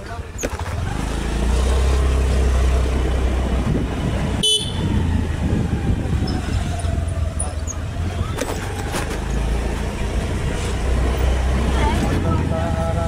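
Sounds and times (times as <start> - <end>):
motorbike road and engine rumble: 0.0 - 13.0
vehicle horn toot: 4.4 - 4.9.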